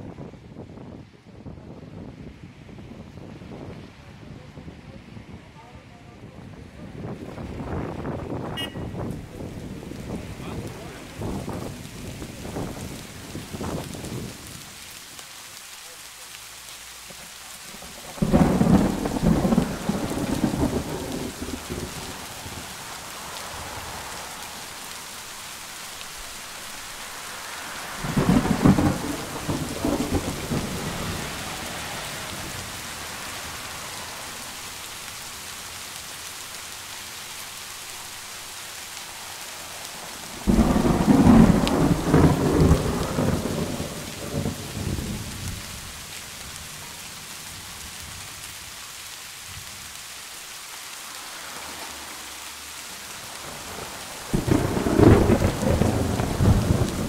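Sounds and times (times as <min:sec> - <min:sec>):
rain hiss: 0:03.2 - 0:57.0
thunder rolling: 0:17.8 - 0:22.7, 0:28.0 - 0:32.7, 0:40.3 - 0:45.6, 0:53.6 - 0:57.0.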